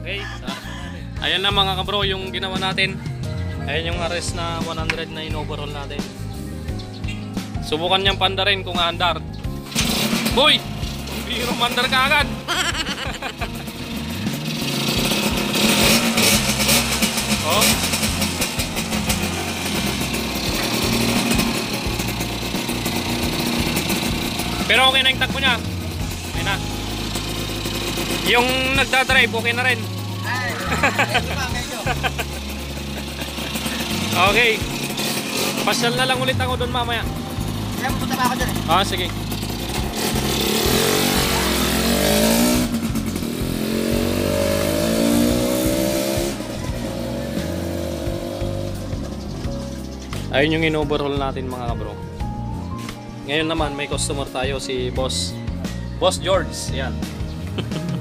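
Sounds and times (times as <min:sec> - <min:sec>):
two-stroke motorcycle engine running: 0:09.6 - 0:51.6.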